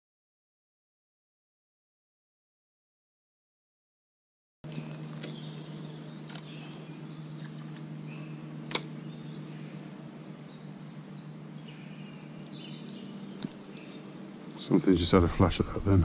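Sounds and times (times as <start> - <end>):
low background hum: 4.6 - 16.0
small birds chirping: 4.7 - 16.0
sharp click: 8.7 - 8.9.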